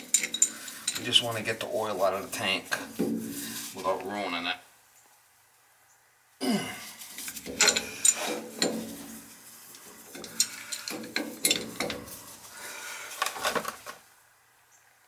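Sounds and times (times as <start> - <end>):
metallic clicks and scraping: 0.0 - 3.8, 7.0 - 14.0
loud metal clanks: 7.4 - 9.2, 10.2 - 12.2.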